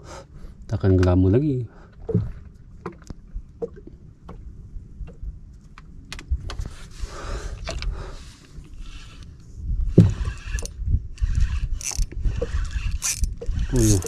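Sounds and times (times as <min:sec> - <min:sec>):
low wind rumble: 0:00.0 - 0:14.0
water lapping against a boat hull: 0:00.0 - 0:14.0
fishing rod rustling: 0:06.5 - 0:14.0.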